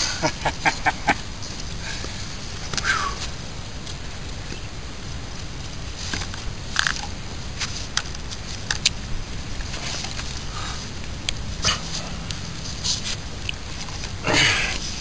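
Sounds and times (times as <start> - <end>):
steady low background noise: 0.0 - 15.0.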